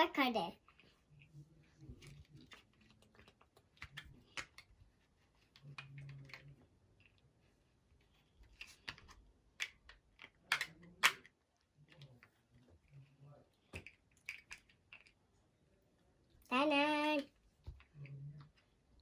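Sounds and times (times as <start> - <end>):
plastic toy blocks clicking: 8.6 - 11.3.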